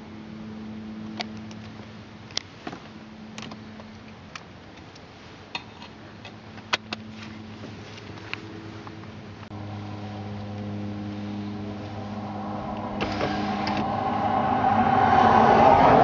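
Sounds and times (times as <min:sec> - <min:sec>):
car engine humming: 0:05.6 - 0:16.0
rush of vehicle noise: 0:06.4 - 0:16.0.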